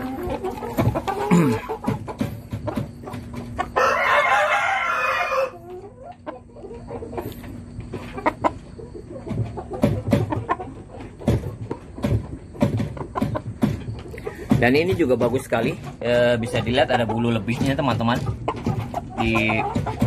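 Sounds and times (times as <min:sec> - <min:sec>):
rooster crowing: 0:03.8 - 0:05.6.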